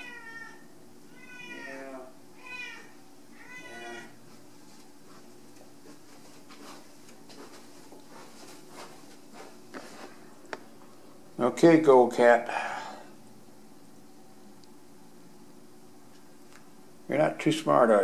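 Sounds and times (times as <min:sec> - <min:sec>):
cat meowing: 0:00.0 - 0:04.2.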